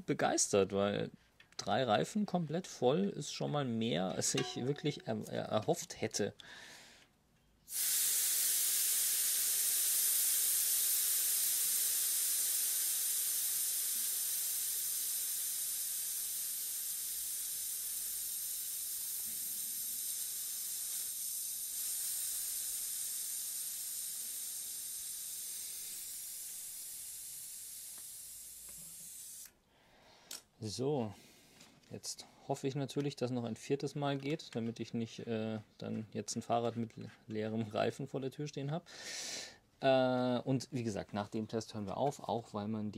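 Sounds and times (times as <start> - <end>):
air hissing from tyre valve: 7.7 - 29.5.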